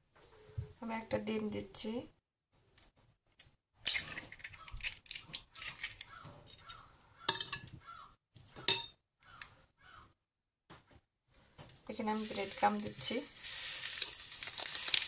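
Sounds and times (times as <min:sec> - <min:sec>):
egg cracking: 0:02.8 - 0:09.6, 0:13.3 - 0:15.0.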